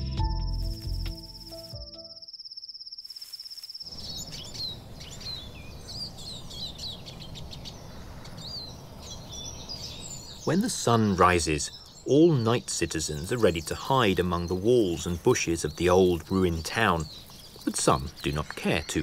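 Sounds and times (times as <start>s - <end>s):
insect trill: 0.5s - 5.5s
faint outdoor hiss: 0.6s - 19.0s
birds chirping and calling: 3.9s - 19.0s.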